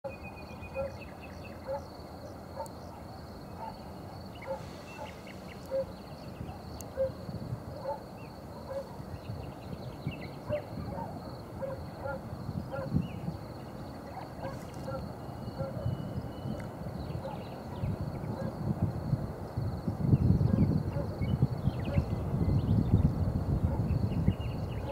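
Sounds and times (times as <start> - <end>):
bird chirps: 0.1 - 1.9, 2.6 - 7.2
wind rumbling on microphone: 0.3 - 24.9.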